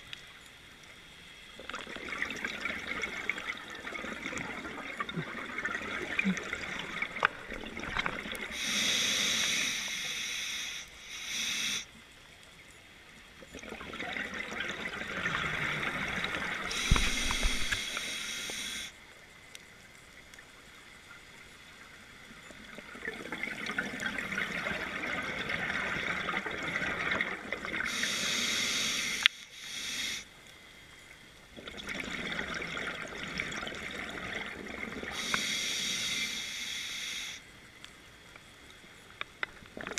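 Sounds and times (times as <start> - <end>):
bubbling exhalation: 1.9 - 8.6, 13.6 - 18.2
regulator hiss: 8.4 - 12.0, 15.6 - 19.1, 27.8 - 30.5, 35.1 - 37.5.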